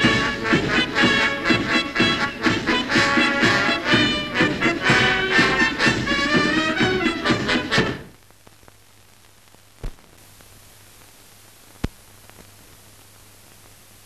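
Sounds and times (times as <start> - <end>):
band music: 0.0 - 8.1
film soundtrack hiss: 0.0 - 14.0.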